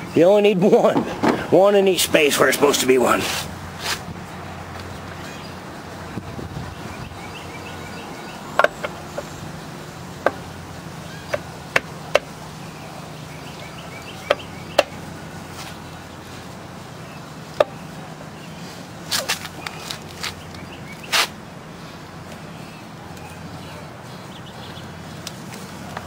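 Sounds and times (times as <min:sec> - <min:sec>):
metal engine cover clicks and knocks: 0:08.6 - 0:09.3, 0:10.2 - 0:10.4.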